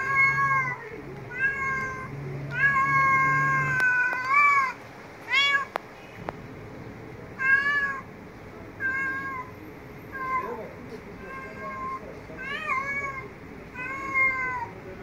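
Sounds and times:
cat meowing: 0.0 - 5.8, 7.4 - 8.1, 8.8 - 9.5, 10.1 - 10.6, 11.2 - 14.8.

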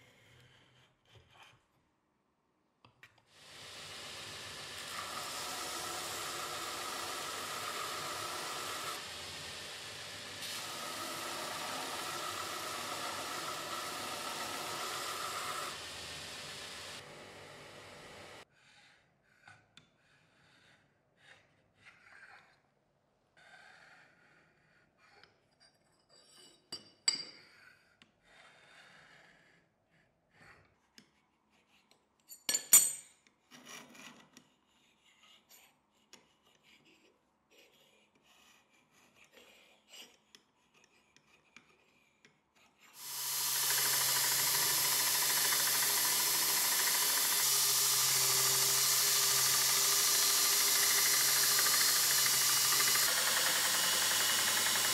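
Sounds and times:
belt grinder motor humming: 3.4 - 18.4, 43.0 - 54.9.

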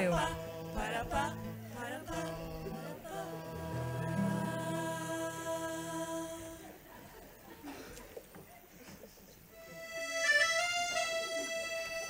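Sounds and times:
ensemble singing and playing chords: 0.0 - 6.9.

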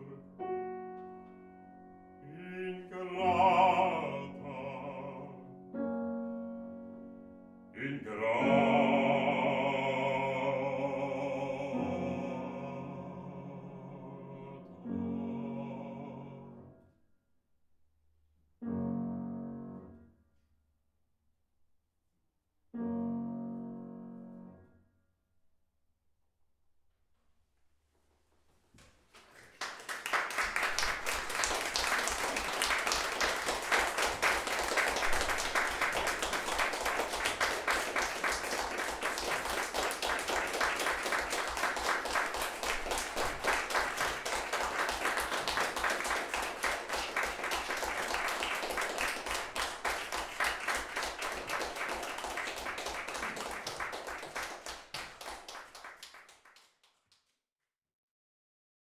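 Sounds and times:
audience applauding: 29.1 - 57.0.

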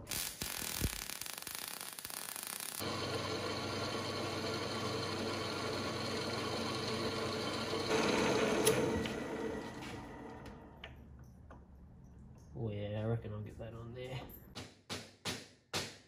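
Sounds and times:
metal lathe running: 2.8 - 10.8.

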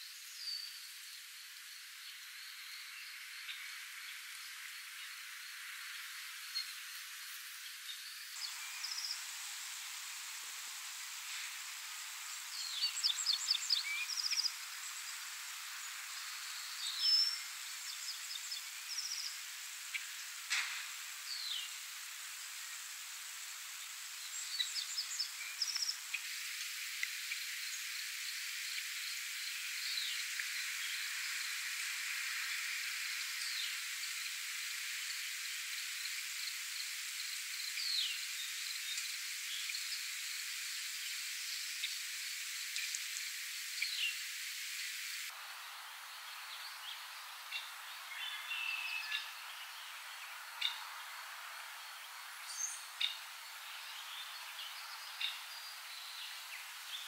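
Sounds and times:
light rain hissing: 0.0 - 57.0
birds singing: 12.3 - 15.2, 46.0 - 51.0, 52.0 - 57.0.

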